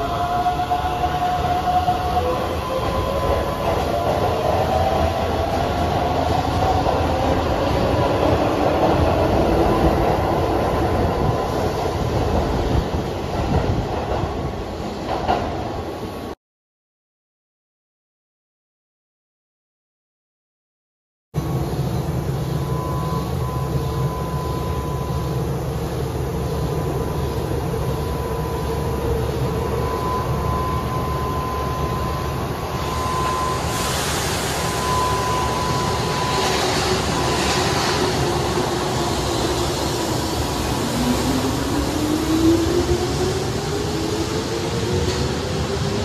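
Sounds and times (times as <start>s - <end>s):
hiss of noise: 33.3s - 35.3s.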